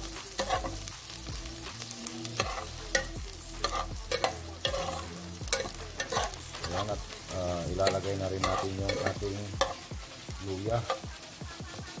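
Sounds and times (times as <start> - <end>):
onion sizzling in hot oil: 0.0 - 12.0
spatula scraping a pot: 0.3 - 0.8, 2.4 - 9.9.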